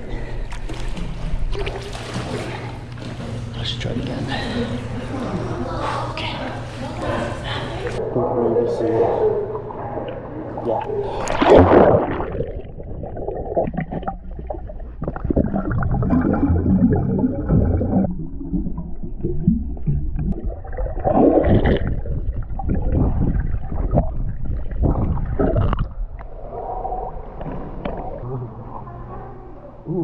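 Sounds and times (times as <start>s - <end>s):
water splashing: 0.5s - 3.5s, 9.2s - 29.3s
underwater gurgling and rushing: 9.0s - 29.9s
bubbles: 9.4s - 29.1s.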